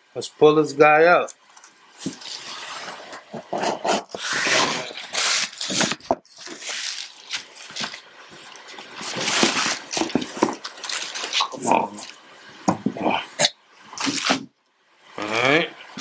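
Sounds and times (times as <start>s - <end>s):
cardboard scraping and rustling: 2.0s - 11.3s.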